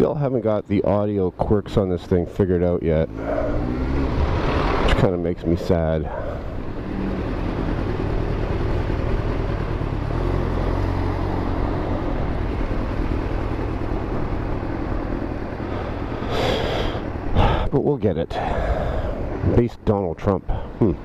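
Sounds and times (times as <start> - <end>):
motorcycle engine running: 3.0 - 17.6.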